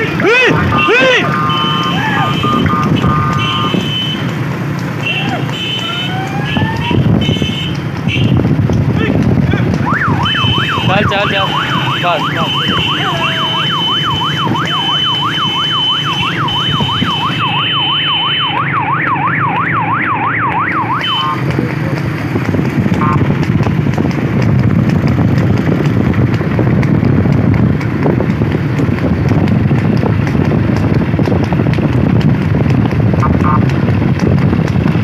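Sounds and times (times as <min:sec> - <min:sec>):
electronic siren yelping: 0:00.2 - 0:04.2, 0:05.8 - 0:07.1, 0:09.8 - 0:21.4, 0:23.0 - 0:23.2.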